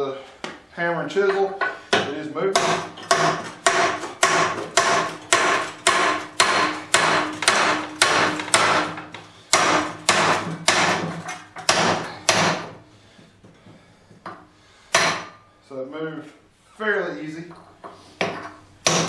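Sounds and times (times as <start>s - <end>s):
hammer striking chisel on steel: 1.6s - 12.8s, 14.9s - 15.4s, 18.2s - 19.0s.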